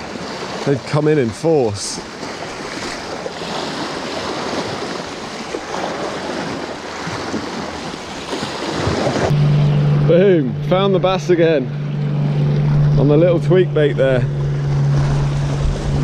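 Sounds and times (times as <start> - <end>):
sea waves washing over rocks: 0.0 - 9.4
wind on microphone: 13.9 - 16.0.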